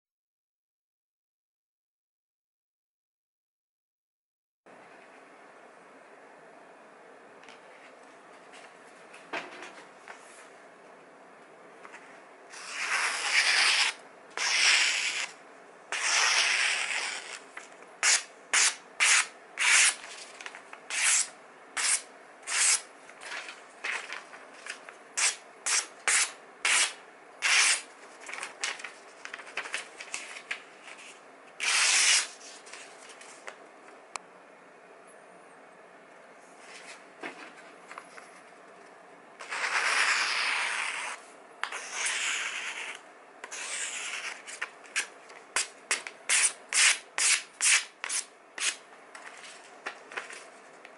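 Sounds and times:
knife slicing through paper: 0:12.5 - 0:17.4, 0:25.2 - 0:32.8, 0:39.4 - 0:45.7.

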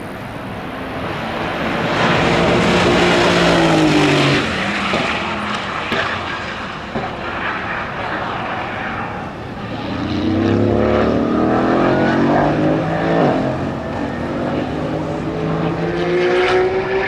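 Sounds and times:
car engine accelerating past: 0:09.7 - 0:17.0.

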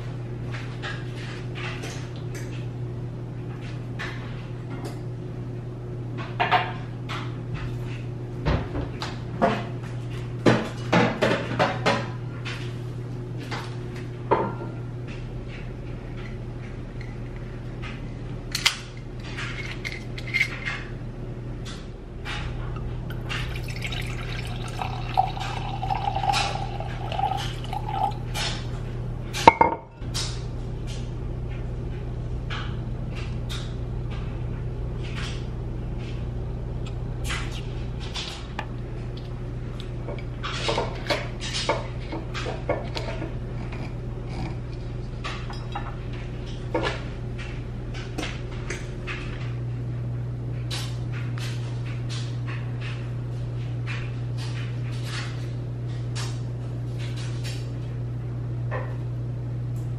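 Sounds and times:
steady low hum: 0:00.0 - 0:59.9
liquid sounds: 0:23.0 - 0:28.6
dishes and glassware clinking: 0:23.2 - 0:28.5, 0:29.4 - 0:30.0.

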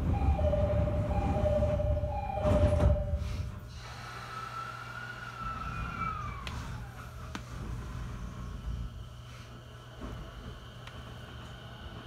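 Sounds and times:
two-tone door chime: 0:00.0 - 0:03.4
train doors sliding shut: 0:00.0 - 0:04.4.

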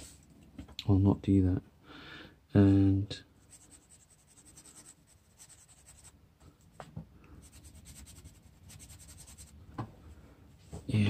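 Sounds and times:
marker scratching on paper: 0:03.4 - 0:06.2, 0:07.4 - 0:09.6.

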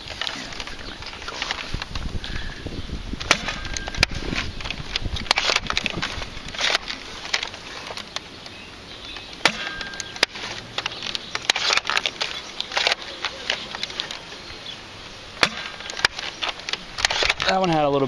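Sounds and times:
wind rumble on microphone: 0:00.0 - 0:06.6
toy blaster clacking and firing: 0:09.4 - 0:14.2.

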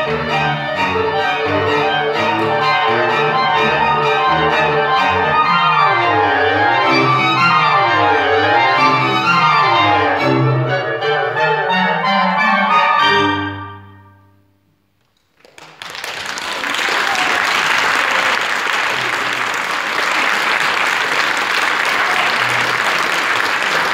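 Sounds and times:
clarinets and strings chord: 0:00.0 - 0:14.7
audience applause: 0:15.2 - 0:23.9.

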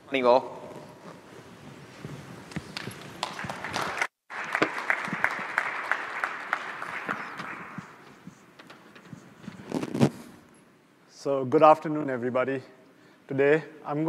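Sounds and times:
audience applauding: 0:02.7 - 0:08.0.

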